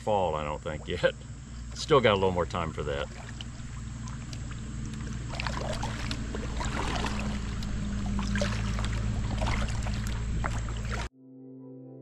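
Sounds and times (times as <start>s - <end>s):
steady low hum: 0.0s - 11.1s
water splashing off paddle: 2.5s - 11.1s.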